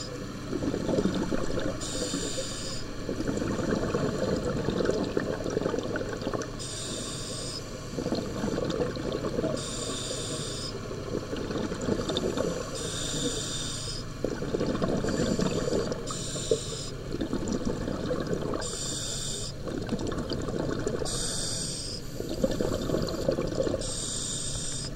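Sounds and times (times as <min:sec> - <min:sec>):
exhaled air bubbling underwater: 0:00.0 - 0:24.9
regulator inhalation hiss: 0:01.8 - 0:02.8, 0:06.6 - 0:07.6, 0:09.6 - 0:10.8, 0:12.8 - 0:14.0, 0:15.2 - 0:17.0, 0:18.6 - 0:19.6, 0:21.1 - 0:22.3, 0:23.8 - 0:24.9.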